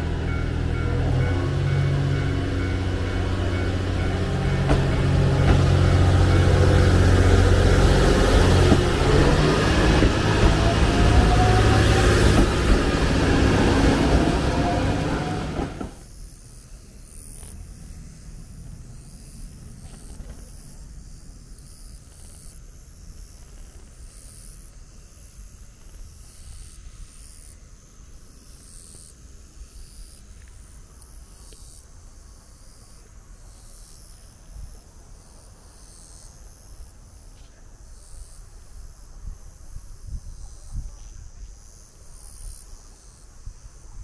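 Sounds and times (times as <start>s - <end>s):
insects trilling: 0.0s - 44.0s
wind rumble on microphone: 39.0s - 41.8s.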